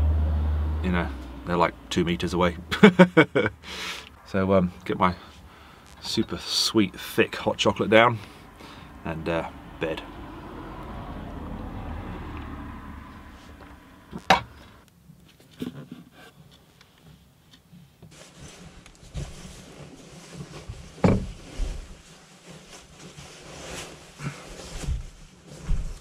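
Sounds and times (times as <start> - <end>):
soft thumps of hammock and vehicle: 17.6 - 26.0
sleeping bag rustling: 18.1 - 26.0.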